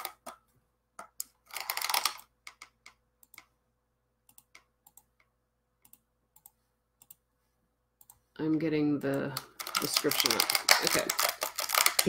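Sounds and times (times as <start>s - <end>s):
computer keyboard typing: 1.0s - 3.6s, 4.2s - 7.2s, 9.1s - 12.0s.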